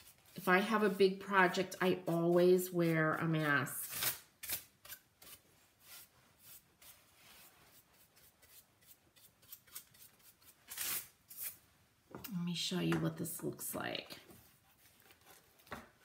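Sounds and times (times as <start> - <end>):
bristle brush swishing on wood: 0.0 - 3.6, 5.2 - 10.3.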